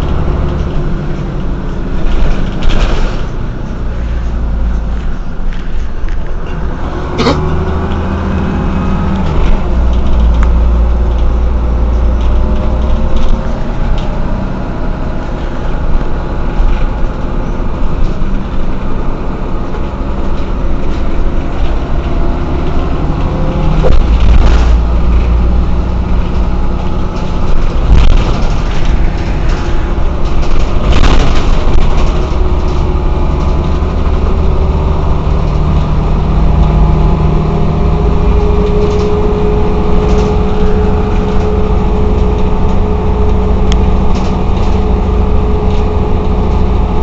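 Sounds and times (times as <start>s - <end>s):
bus engine droning: 0.0s - 47.0s
knocks and rattles: 15.2s - 47.0s.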